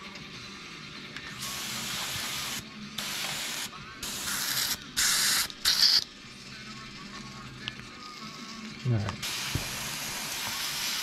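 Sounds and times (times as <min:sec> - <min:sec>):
airbrush spraying hiss: 0:01.4 - 0:06.0, 0:09.2 - 0:11.0.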